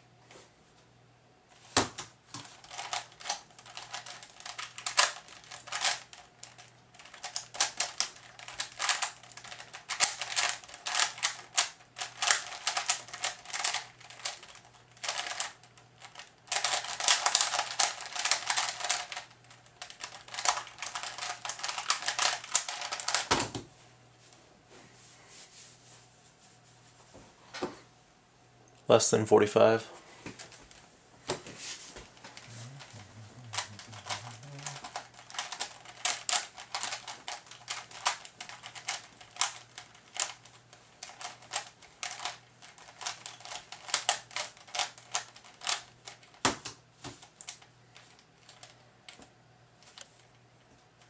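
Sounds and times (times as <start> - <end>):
puzzle cube turning clatter: 2.4 - 23.6, 32.2 - 48.8.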